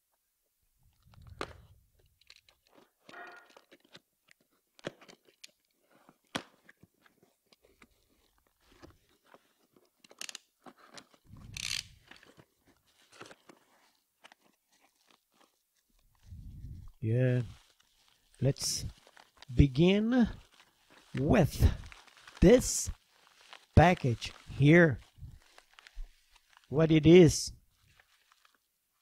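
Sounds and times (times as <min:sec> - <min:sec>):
packing tape peeling and tearing: 0:01.0 - 0:05.8, 0:07.5 - 0:16.1, 0:17.5 - 0:19.5, 0:20.3 - 0:26.7
cardboard and bubble wrap crackling: 0:17.4 - 0:26.7, 0:27.7 - 0:28.7.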